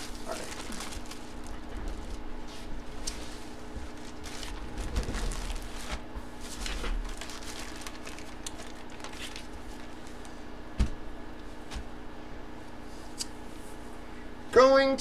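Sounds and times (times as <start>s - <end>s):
plastic packaging crinkling: 0.0s - 10.5s.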